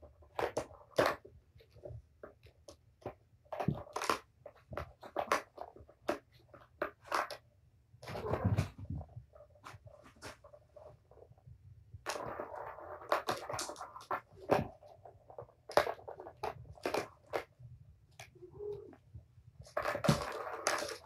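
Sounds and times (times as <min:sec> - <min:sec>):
balls rolling in plastic track: 0:12.0 - 0:17.6, 0:19.6 - 0:21.0
balls clicking against track walls: 0:12.1 - 0:18.4, 0:19.6 - 0:21.0.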